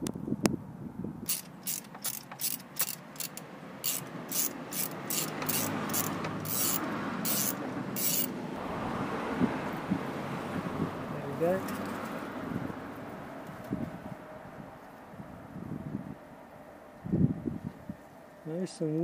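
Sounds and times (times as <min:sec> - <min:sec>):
socket ratchet clicking: 0:01.3 - 0:08.3.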